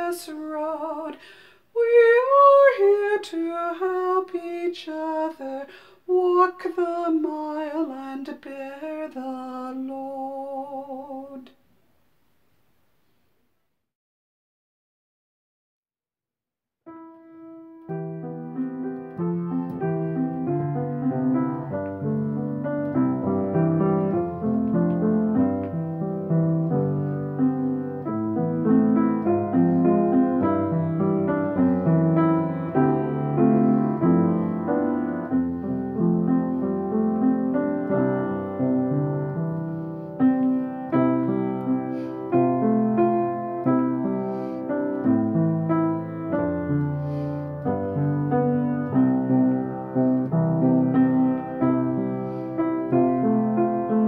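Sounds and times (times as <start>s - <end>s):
solo piano music: 0.0s - 11.5s, 16.8s - 54.0s.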